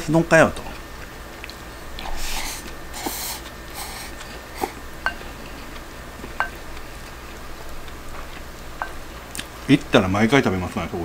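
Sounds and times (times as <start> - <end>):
breathy sniffs: 2.0 - 4.8
spoon tapping ceramic bowl: 5.0 - 5.3, 6.4 - 6.6.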